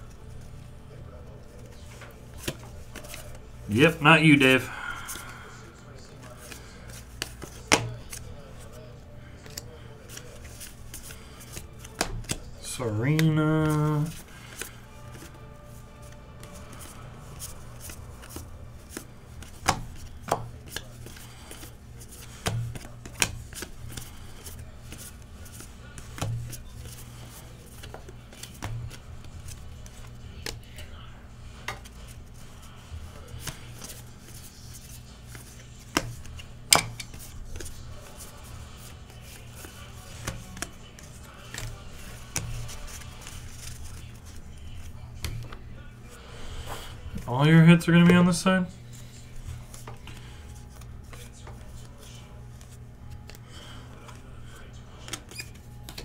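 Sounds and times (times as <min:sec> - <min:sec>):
cards tapping on a table: 0:06.4 - 0:08.2, 0:09.4 - 0:12.5, 0:16.5 - 0:26.9, 0:27.6 - 0:30.9, 0:35.3 - 0:38.3, 0:39.0 - 0:44.0.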